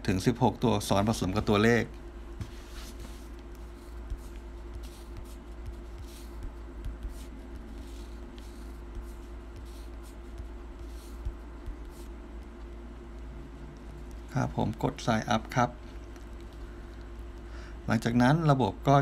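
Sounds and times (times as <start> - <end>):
steady low hum: 0.0 - 19.0
fingertips tapping touchscreen: 2.4 - 15.0.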